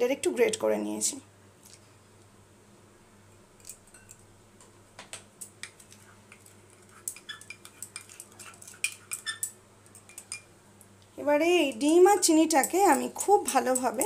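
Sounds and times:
spatula tapping glass bowl: 0:12.2 - 0:14.0.

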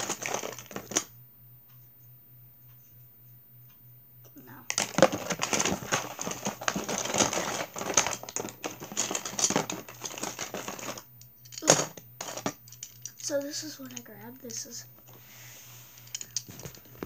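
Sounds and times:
rummaging through cardboard box: 0:00.0 - 0:01.0, 0:04.7 - 0:11.0.

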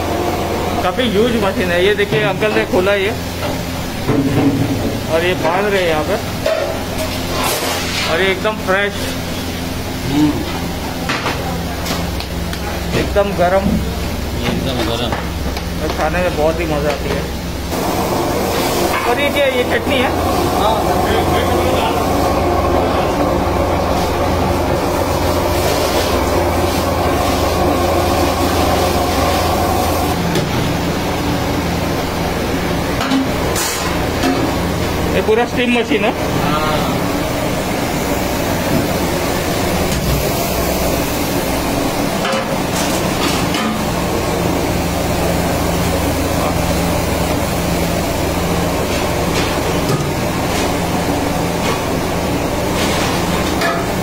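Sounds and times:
steam machine rushing: 0:17.7 - 0:30.3.

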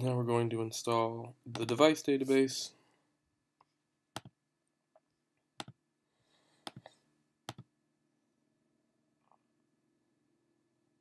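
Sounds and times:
computer mouse clicks: 0:05.6 - 0:05.8, 0:06.6 - 0:07.7.

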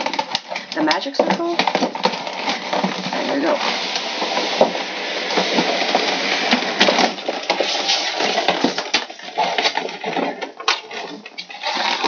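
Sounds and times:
plastic tray crinkling: 0:00.0 - 0:12.0.

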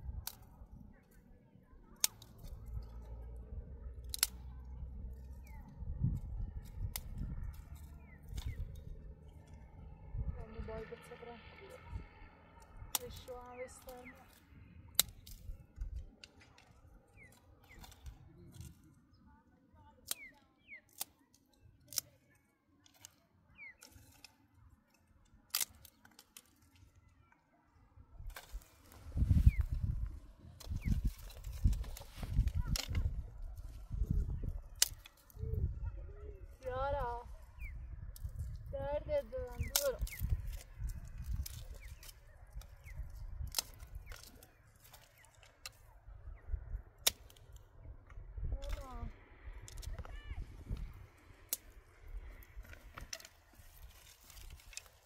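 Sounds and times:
dry twigs snapping: 0:00.0 - 0:01.2, 0:01.8 - 0:09.9, 0:12.2 - 0:19.1, 0:20.0 - 0:27.1, 0:28.2 - 0:35.8, 0:36.5 - 0:55.0
low wind rumble: 0:00.0 - 0:20.7, 0:26.8 - 0:55.0.

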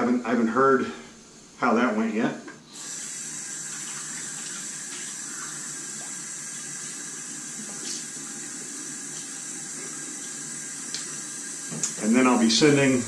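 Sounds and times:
water running from a tap: 0:02.7 - 0:13.0.

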